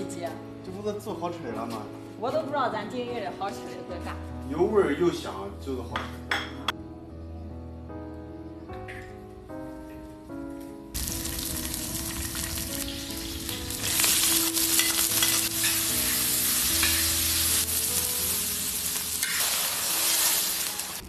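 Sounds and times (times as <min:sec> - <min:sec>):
background music: 0:00.0 - 0:21.0
chillies frying and stirred: 0:11.0 - 0:21.0
oil sizzling in a wok: 0:11.0 - 0:21.0.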